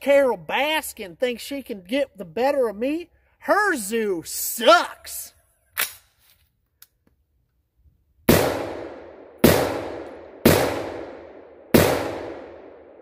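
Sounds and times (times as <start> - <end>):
gunshots with long echo: 8.3 - 13.0.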